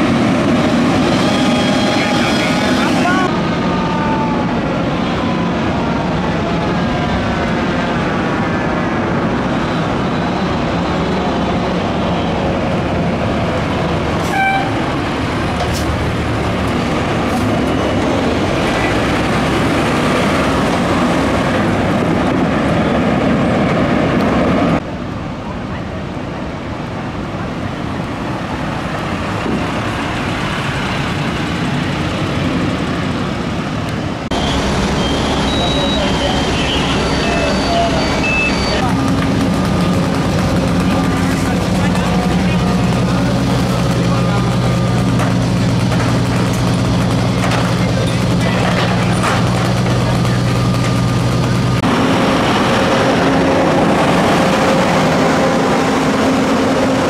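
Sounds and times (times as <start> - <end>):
short horn toot: 14.2 - 14.8
steady background noise: 14.8 - 57.0
fire engine diesel engine running: 27.4 - 57.0.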